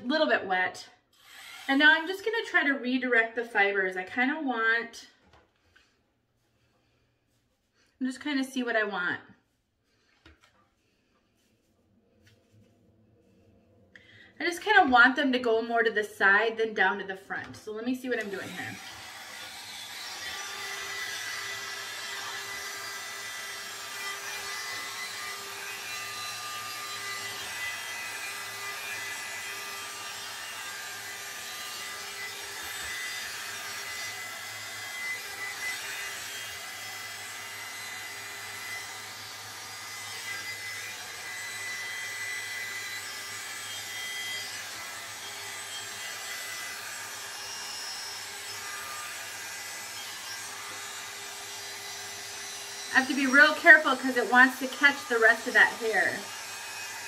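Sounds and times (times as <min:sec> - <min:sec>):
hot airbrush fan blowing: 0:18.0 - 0:57.0.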